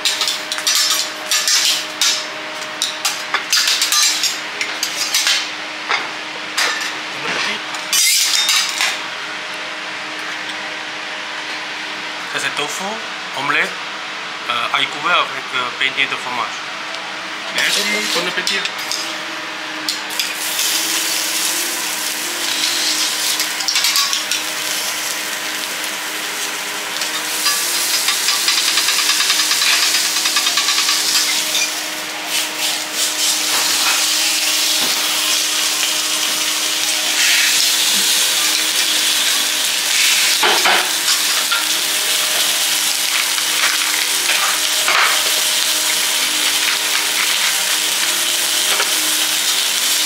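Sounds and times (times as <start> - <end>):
prawns sizzling on a griddle: 0.0 - 5.6, 17.6 - 50.0.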